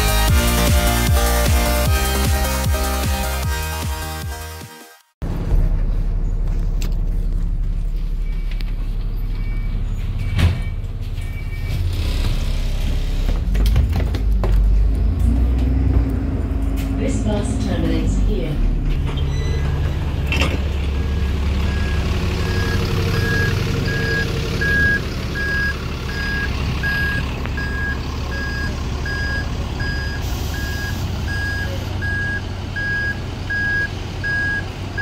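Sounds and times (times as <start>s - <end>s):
bus diesel engine running: 0.0s - 4.6s, 5.2s - 35.0s
vehicle reversing alarm beeping: 7.7s - 12.2s, 17.5s - 35.0s.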